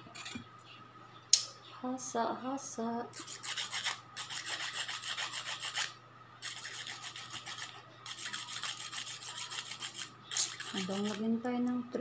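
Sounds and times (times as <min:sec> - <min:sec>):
metal tool scraping on sharpener: 0:00.1 - 0:00.4, 0:03.2 - 0:11.2.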